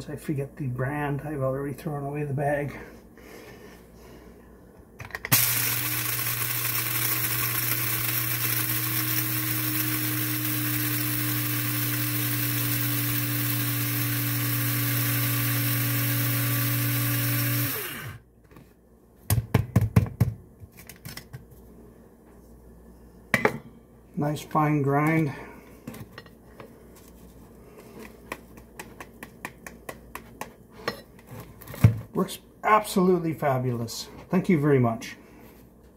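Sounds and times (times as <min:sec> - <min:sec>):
coffee grinder motor whine: 0:05.3 - 0:18.2.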